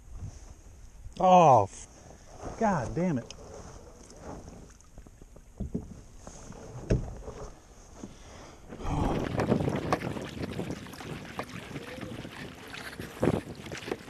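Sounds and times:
water splashing around boat: 2.0s - 14.0s
wind on microphone: 8.7s - 14.0s.

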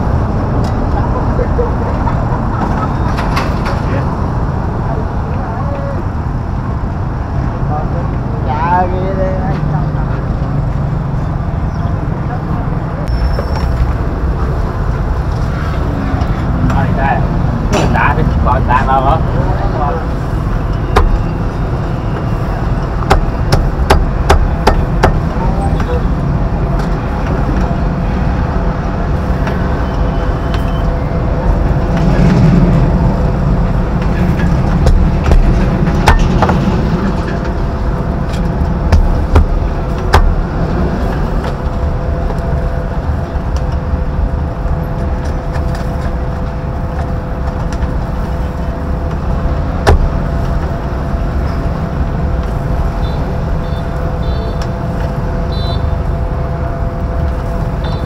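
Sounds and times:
traffic: 0.0s - 58.0s
sharp clicks and knocks: 34.0s - 37.6s, 38.2s - 40.5s.

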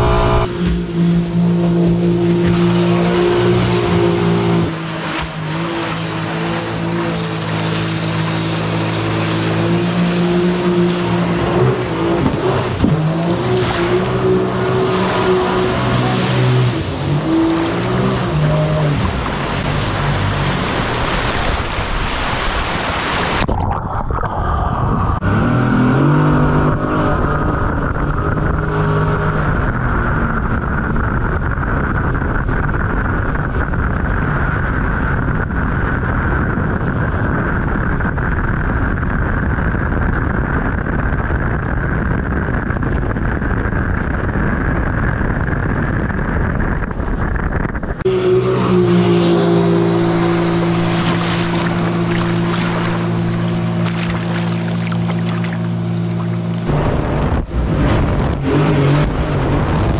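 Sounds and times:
jet boat racing past: 0.0s - 23.5s, 46.9s - 59.9s
muffled boat engine drone: 0.0s - 59.9s
rushing water: 0.0s - 59.9s.

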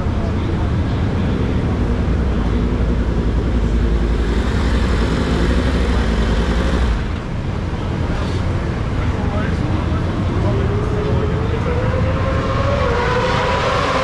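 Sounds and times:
motorcycle engine running: 1.5s - 7.2s.

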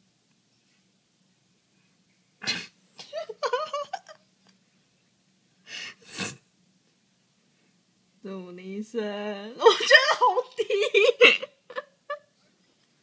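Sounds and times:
high wavering giggling: 3.0s - 4.2s.

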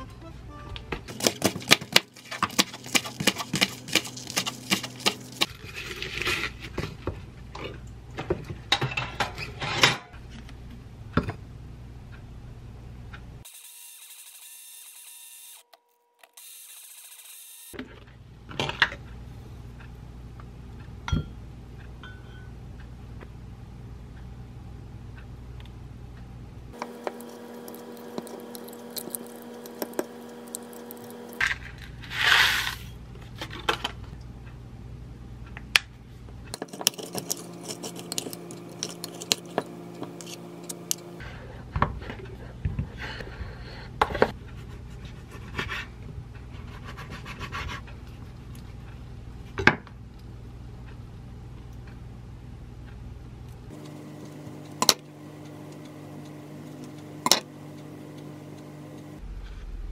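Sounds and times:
utensils clicking and scraping: 1.1s - 6.8s, 36.4s - 41.2s
wooden spoon stirring in glass bowl: 36.5s - 41.0s.

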